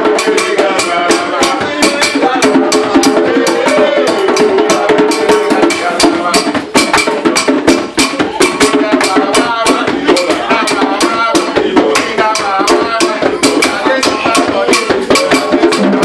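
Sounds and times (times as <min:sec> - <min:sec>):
hand drumming: 0:00.0 - 0:16.0
people singing: 0:00.0 - 0:16.0.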